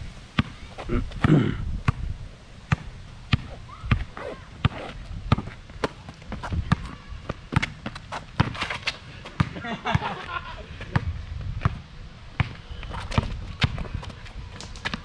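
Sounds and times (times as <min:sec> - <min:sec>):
basketball bouncing on hard court: 0:02.7 - 0:08.7, 0:09.4 - 0:10.1.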